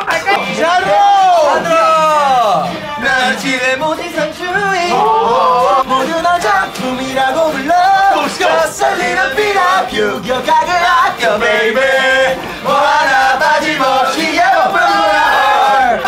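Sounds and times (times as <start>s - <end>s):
young men singing loudly: 0.0s - 16.0s.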